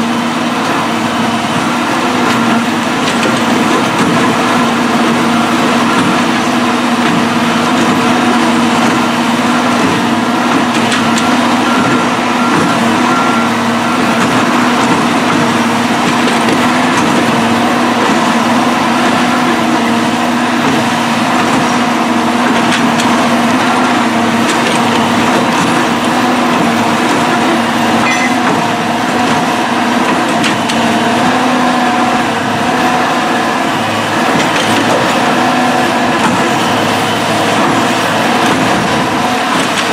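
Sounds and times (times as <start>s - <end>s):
machine engine running: 0.0s - 39.9s.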